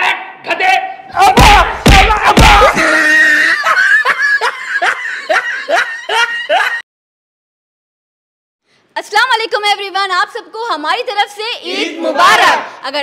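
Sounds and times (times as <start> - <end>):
heavy thumps: 1.2 - 2.8.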